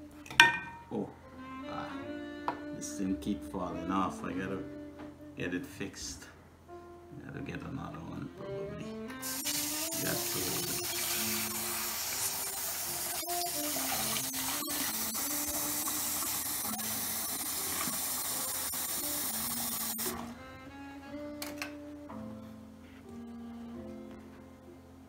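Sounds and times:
faucet running into steel sink: 9.2s - 20.2s.

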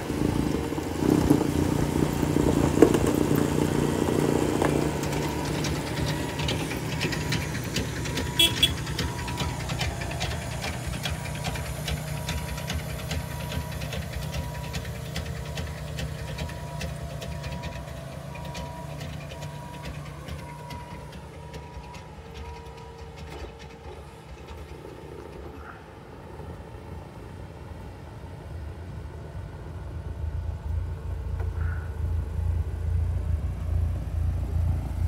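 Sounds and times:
snow blower engine running: 0.0s - 27.8s.

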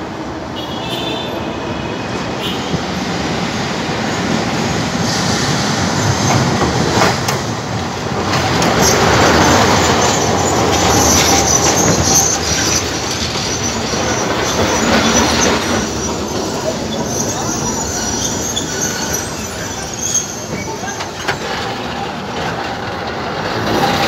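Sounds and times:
tram wheels rolling on rails: 1.4s - 24.0s
high wheel squeal: 8.8s - 22.2s.

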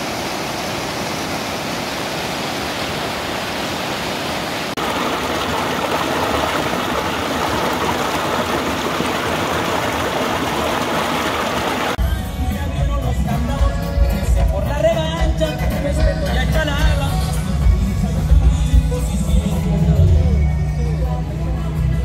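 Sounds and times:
river rushing over boulders: 0.0s - 12.0s.

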